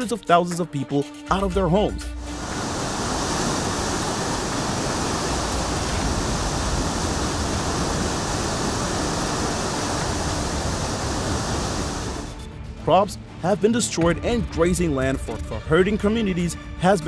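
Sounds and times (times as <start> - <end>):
floodwater rushing: 2.2 - 12.4.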